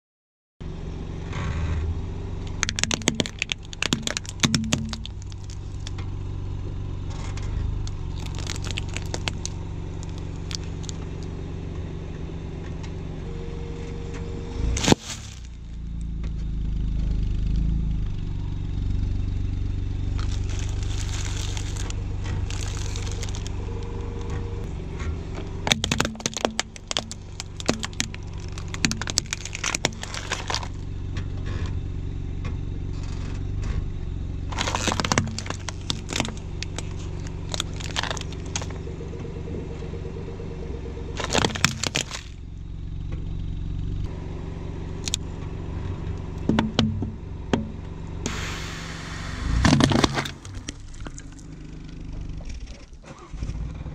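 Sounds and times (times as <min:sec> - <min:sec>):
car engine running: 0:00.6 - 0:53.9
plastic toy breaking: 0:02.6 - 0:06.0, 0:08.2 - 0:11.0, 0:20.2 - 0:23.6, 0:25.6 - 0:30.8, 0:34.5 - 0:38.8, 0:41.2 - 0:42.4, 0:49.4 - 0:51.4
tyre crushing objects: 0:02.6 - 0:06.0, 0:08.1 - 0:11.2, 0:14.6 - 0:15.6, 0:20.1 - 0:24.1, 0:25.4 - 0:30.8, 0:34.5 - 0:38.8, 0:41.2 - 0:42.4, 0:46.4 - 0:51.4.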